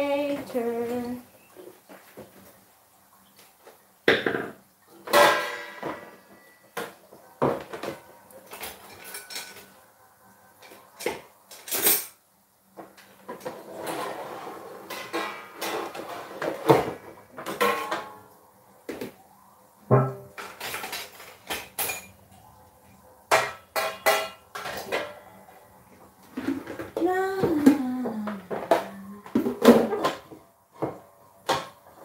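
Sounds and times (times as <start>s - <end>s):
dishes and cutlery clattering: 4.1s - 9.8s, 10.6s - 12.2s, 13.3s - 18.3s, 19.9s - 22.3s, 23.3s - 25.5s, 28.5s - 31.8s.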